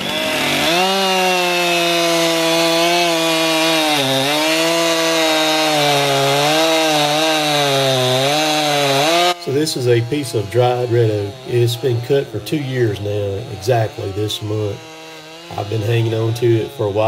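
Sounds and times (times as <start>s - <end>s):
chainsaw cutting log: 0.0s - 17.0s.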